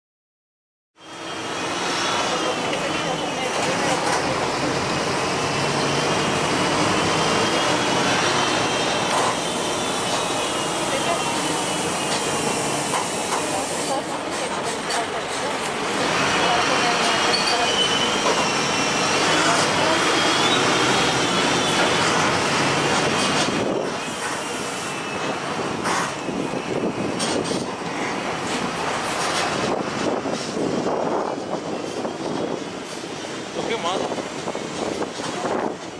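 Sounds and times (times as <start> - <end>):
steady vehicle noise: 1.0 - 17.3, 18.2 - 35.9
heavy construction machinery running: 1.0 - 35.9
high wavering squeal: 17.3 - 19.4.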